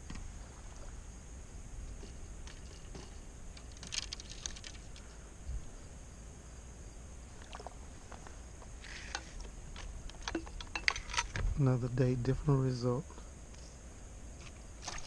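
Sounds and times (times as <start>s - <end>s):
faint clicks and ticks: 1.9s - 5.2s.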